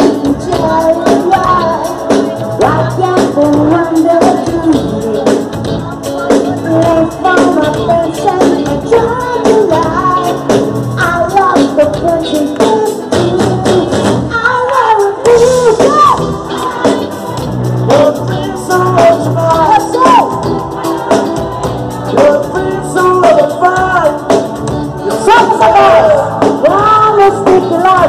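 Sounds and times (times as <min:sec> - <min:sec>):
woman singing into a microphone: 0:00.0 - 0:24.3, 0:25.0 - 0:28.0
live band playing: 0:00.0 - 0:28.0.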